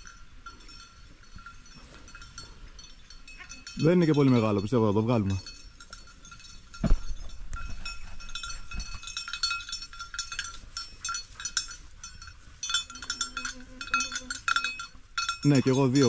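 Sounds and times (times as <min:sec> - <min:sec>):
dog bell jangling: 0:00.0 - 0:16.0
dull thump: 0:06.8 - 0:07.8.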